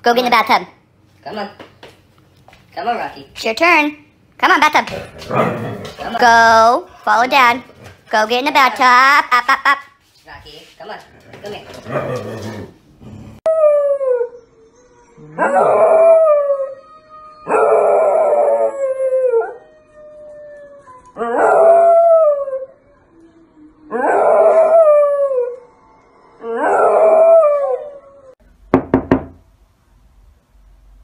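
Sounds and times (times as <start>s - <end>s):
young dog howling: 13.4s - 28.4s.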